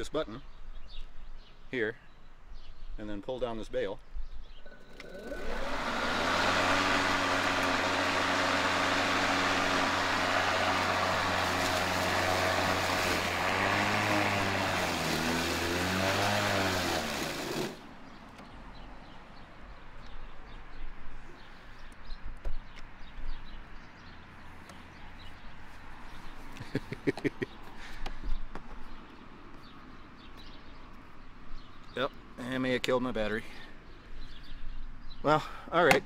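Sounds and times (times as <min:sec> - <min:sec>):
electric lawn mower running: 0:04.7 - 0:17.9.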